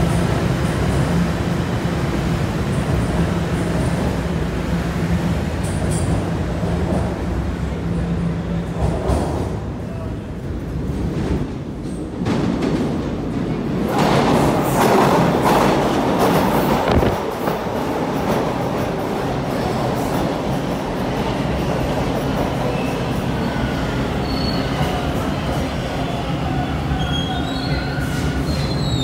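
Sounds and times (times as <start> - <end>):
subway train rumble: 0.0 - 29.0
wheel and brake squeal: 24.2 - 24.9, 26.9 - 29.0.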